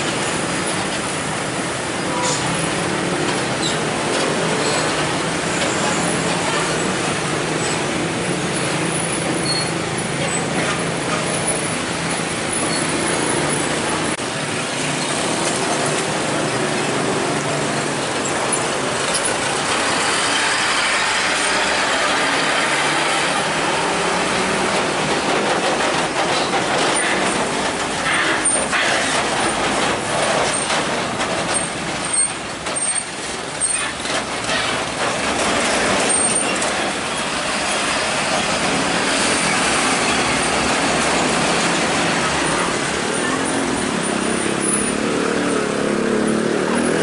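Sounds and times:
truck engines running: 0:00.0 - 0:47.0.

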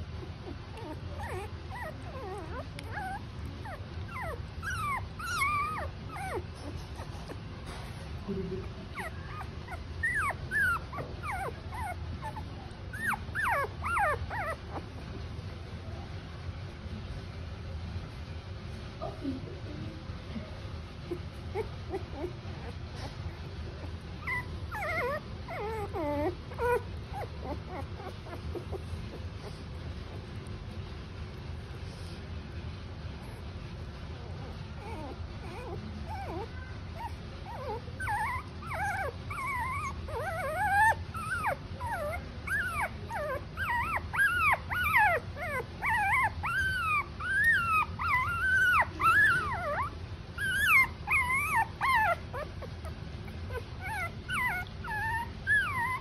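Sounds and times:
puppy whimpering and squealing: 0:00.1 - 0:07.5, 0:08.6 - 0:15.0, 0:21.1 - 0:30.3, 0:34.4 - 0:56.0.

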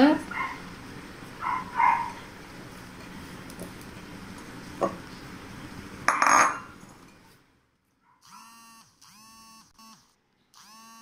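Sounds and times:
glass bowl clinking: 0:06.1 - 0:07.2
short buzzing tones: 0:08.2 - 0:11.0.

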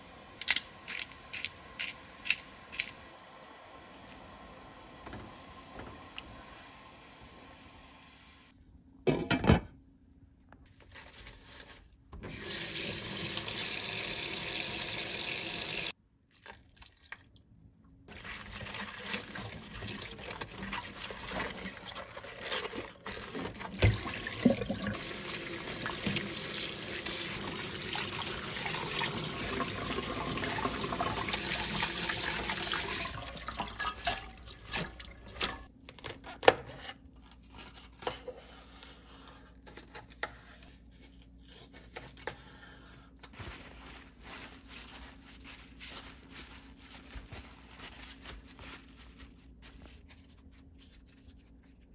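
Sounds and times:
kitchen tap running: 0:12.2 - 0:15.9, 0:18.1 - 0:35.7
water splashing in a sink: 0:12.3 - 0:35.7.

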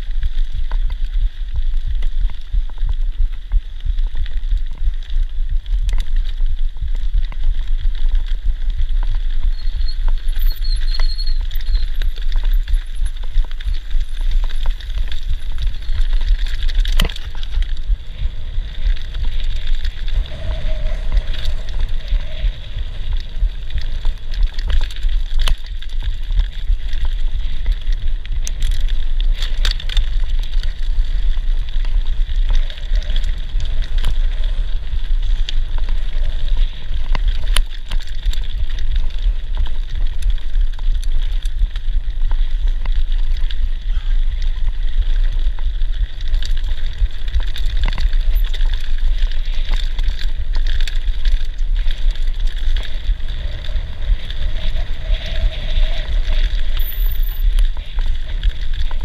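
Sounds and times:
bike clicks and rattles: 0:00.0 - 0:59.0
wind buffeting microphone: 0:06.7 - 0:43.0, 0:43.6 - 0:59.0
tyres crunching on gravel: 0:10.6 - 0:43.6.

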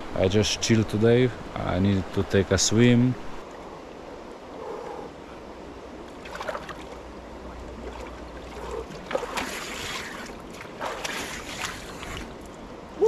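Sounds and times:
rushing water: 0:00.0 - 0:13.0
person splashing in water: 0:06.2 - 0:07.0, 0:07.8 - 0:12.3.

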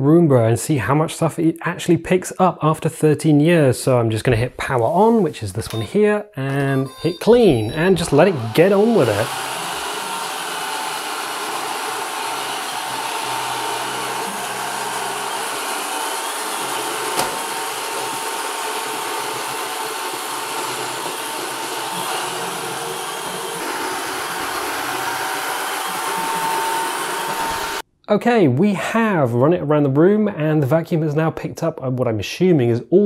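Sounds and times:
robot vacuum whining: 0:06.6 - 0:27.8
bumper knocking furniture: 0:17.0 - 0:17.6.

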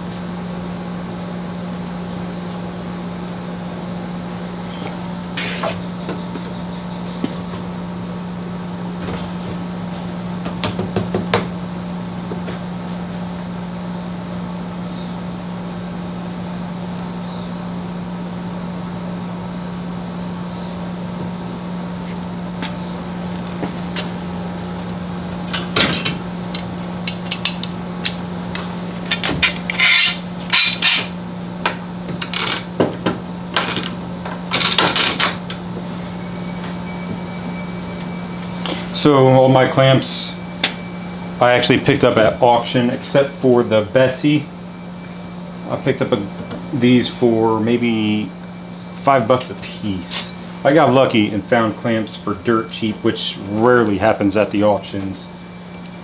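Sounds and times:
steady low hum: 0:00.0 - 0:56.0
metal clamps clinking: 0:29.1 - 0:31.1.

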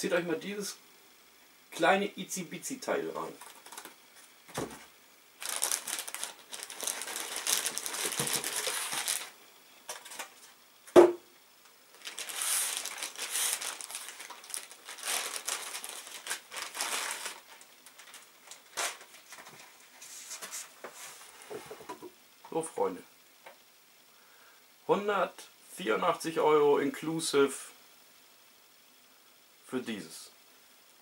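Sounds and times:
plastic bag crinkling: 0:05.4 - 0:10.6, 0:11.9 - 0:20.5
sharp knock: 0:10.9 - 0:11.2.

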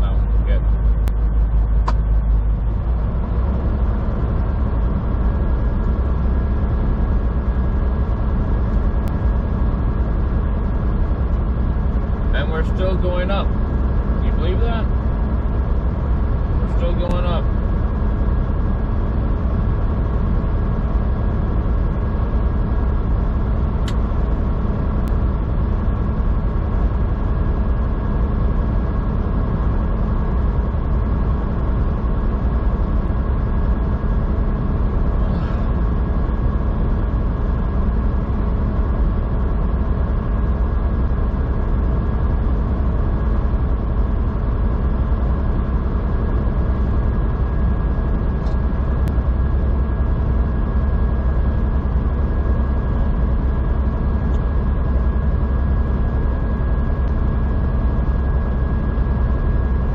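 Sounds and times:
road noise: 0:00.0 - 0:05.2
truck diesel engine drone: 0:00.0 - 0:59.9.

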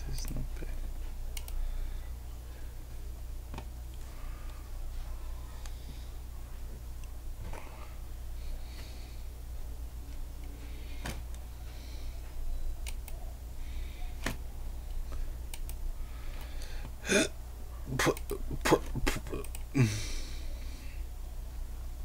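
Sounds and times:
steady low hum: 0:00.0 - 0:22.0
soft breathing: 0:01.0 - 0:03.1, 0:04.0 - 0:06.8, 0:07.4 - 0:17.0, 0:19.8 - 0:21.1.

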